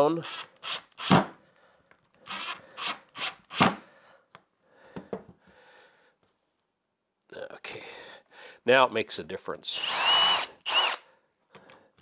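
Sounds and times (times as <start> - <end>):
impact driver whining: 9.8 - 11.0.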